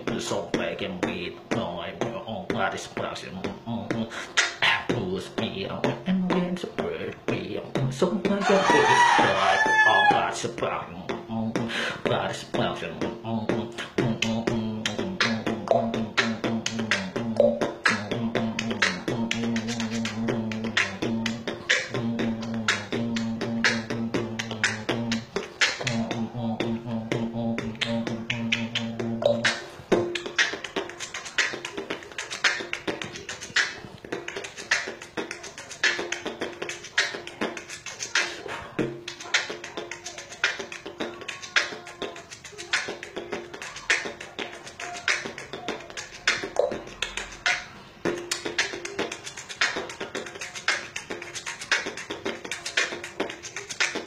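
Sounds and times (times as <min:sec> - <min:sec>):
person beatboxing: 0:00.0 - 0:54.0.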